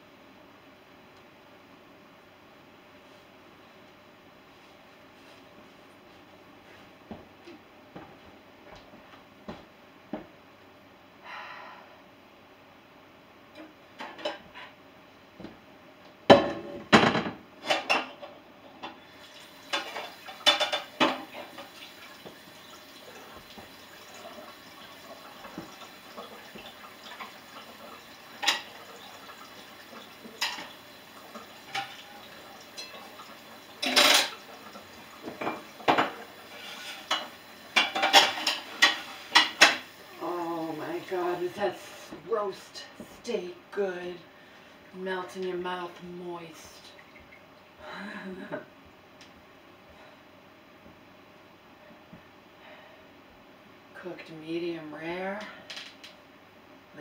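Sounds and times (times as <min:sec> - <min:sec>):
dishes and cutlery clattering: 0:19.7 - 0:21.7, 0:33.8 - 0:34.4, 0:35.2 - 0:39.8.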